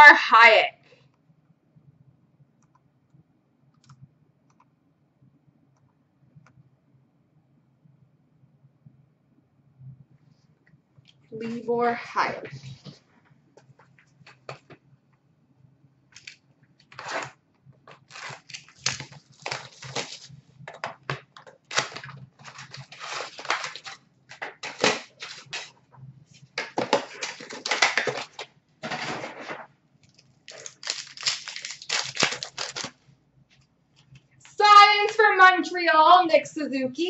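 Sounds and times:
card pack wrappers tearing: 16.2 - 17.3, 17.9 - 25.7, 26.6 - 28.5, 30.0 - 33.0.

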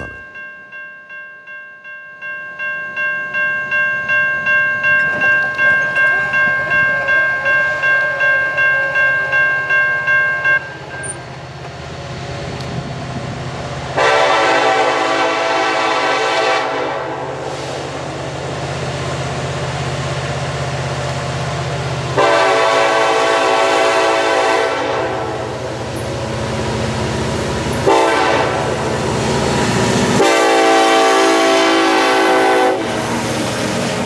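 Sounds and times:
diesel locomotive rumbling: 0.0 - 1.0, 2.4 - 34.0
crossing bell dinging: 0.0 - 11.8
train horn blast: 13.9 - 17.5, 22.1 - 25.5, 27.8 - 29.0, 30.1 - 33.0.

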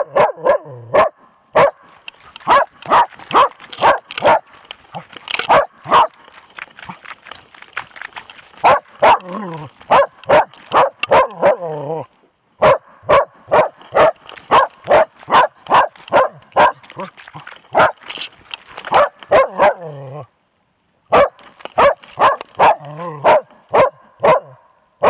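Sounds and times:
dog barking: 0.0 - 1.8, 2.4 - 4.4, 5.4 - 6.2, 8.6 - 11.7, 12.6 - 17.1, 18.9 - 19.9, 21.1 - 24.6
dog whining barks: 0.0 - 1.8, 8.6 - 12.0, 12.6 - 17.1, 18.9 - 20.2, 21.1 - 24.6.

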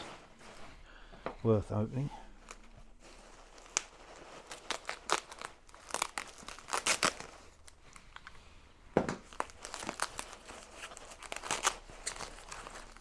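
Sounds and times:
packaging wrap crinkling and tearing: 2.4 - 8.4, 9.2 - 13.0.

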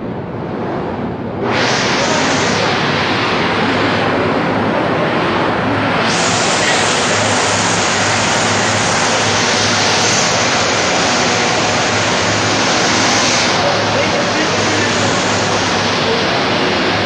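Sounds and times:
factory machinery din: 0.0 - 17.0.

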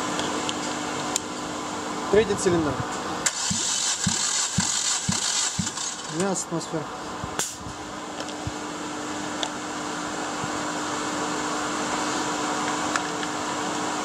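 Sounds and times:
fan-like hum and hiss: 0.0 - 14.0.

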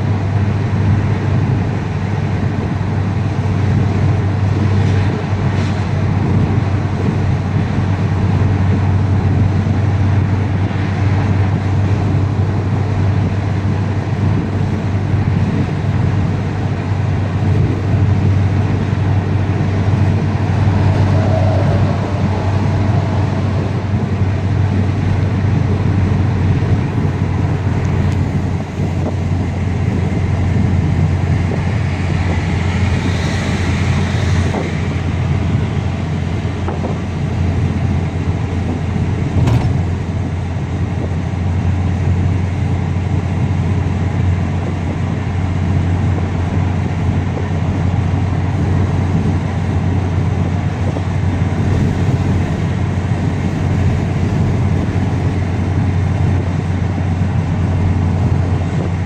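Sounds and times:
car engine drone inside cabin: 0.0 - 59.0
road rumble: 0.0 - 59.0.

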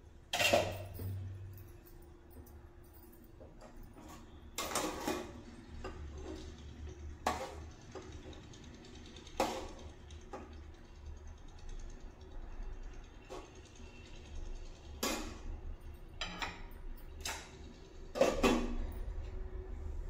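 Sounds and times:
metal spoon clinking and scraping: 0.2 - 10.0.

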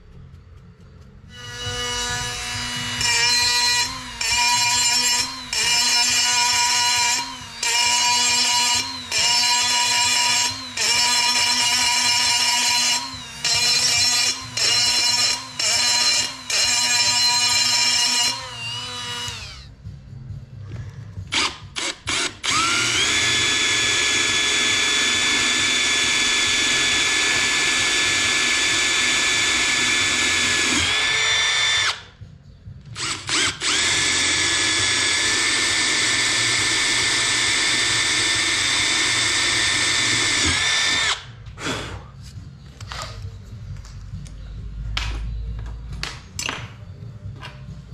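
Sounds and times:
cordless drill drilling into metal: 1.4 - 19.7, 21.3 - 32.0, 33.0 - 41.3
drill trigger blips: 1.4 - 19.7, 21.3 - 32.0
small power tool spinning down: 1.4 - 19.7, 21.4 - 32.0.

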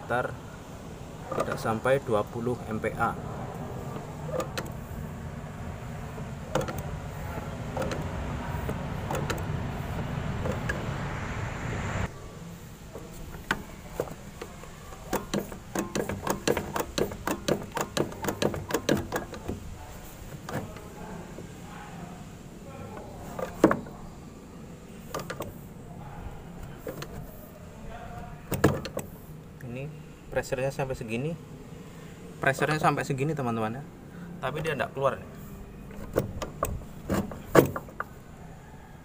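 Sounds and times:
steady whirring noise: 0.0 - 39.0
hand pump clicking strokes: 13.4 - 19.6.

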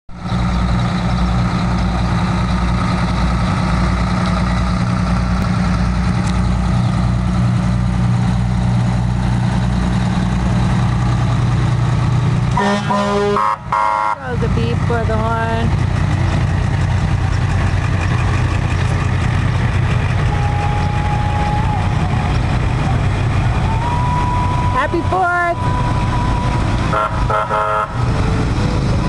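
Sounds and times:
fire engine diesel engine rumbling: 0.1 - 29.0
vehicle horn blasts: 12.6 - 14.3, 26.9 - 28.0.

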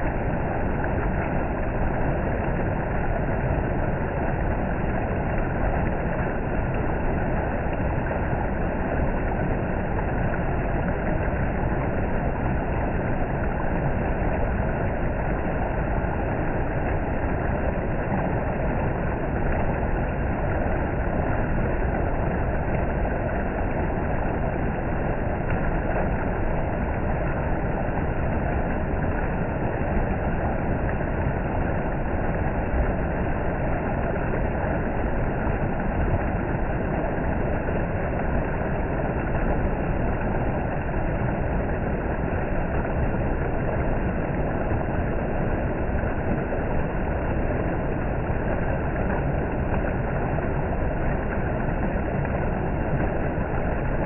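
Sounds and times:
creek water rushing over rocks: 0.0 - 54.0.

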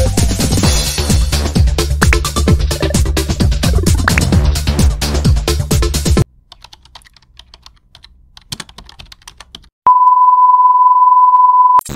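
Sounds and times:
electronic music: 0.0 - 6.2.

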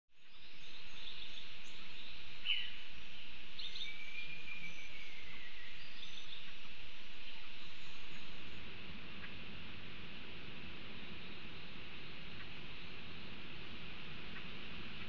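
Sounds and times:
sharp bird calls: 0.2 - 9.5
steady high hiss: 0.2 - 15.0.

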